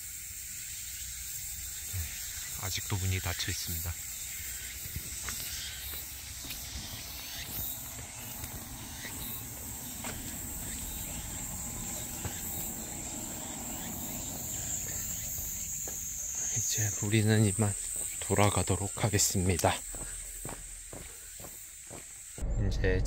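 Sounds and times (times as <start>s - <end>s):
high-pitched insect chorus: 0.0s - 22.4s
low rumble: 22.4s - 23.0s.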